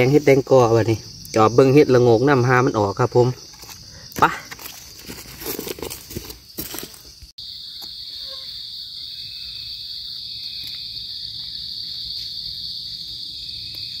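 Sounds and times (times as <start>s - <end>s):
boots crunching through dry leaves: 4.6s - 7.2s
high-pitched insect drone: 5.8s - 14.0s.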